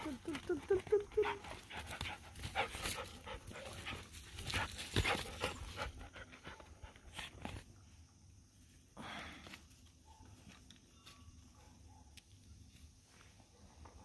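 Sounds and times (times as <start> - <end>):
dog panting: 1.1 - 7.1.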